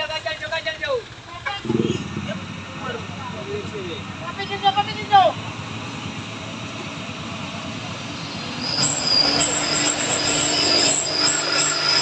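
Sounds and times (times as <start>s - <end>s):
truck engine tone: 0.0s - 12.0s
tyres squealing: 8.1s - 12.0s.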